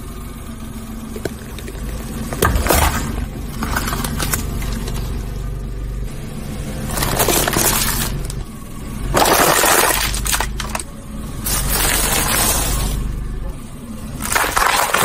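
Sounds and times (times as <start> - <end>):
steady low hum: 0.0 - 14.4
plastic tray cracking and crunching: 2.3 - 5.1, 6.9 - 8.4, 9.2 - 10.9, 14.2 - 15.0.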